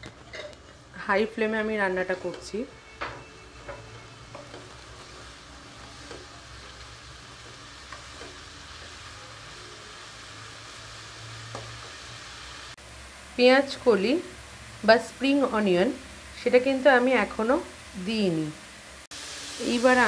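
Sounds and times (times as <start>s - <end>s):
spatula scraping a wok: 0.0s - 12.5s
vegetables sizzling in oil: 0.0s - 20.0s.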